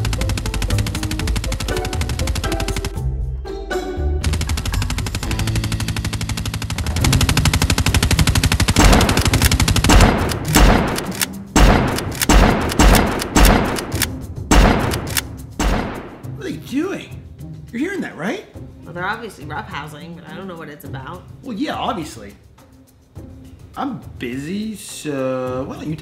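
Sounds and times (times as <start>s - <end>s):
rapid toy blaster shots: 0.0s - 2.9s, 4.2s - 16.1s.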